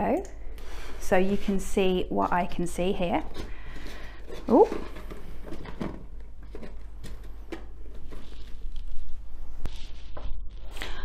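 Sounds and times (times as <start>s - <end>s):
cardboard box rustling: 3.2s - 9.1s.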